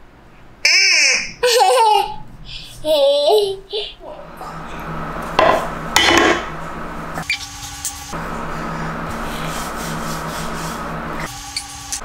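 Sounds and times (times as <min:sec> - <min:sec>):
steady hum: 0:01.3 - 0:12.0
rubbing and scraping: 0:07.3 - 0:11.3.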